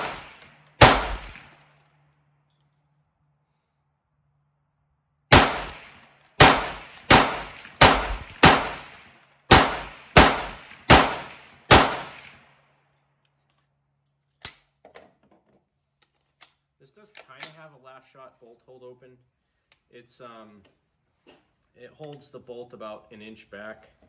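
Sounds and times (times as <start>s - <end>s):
rifle shots with echo: 0.0s - 1.6s, 5.3s - 12.5s.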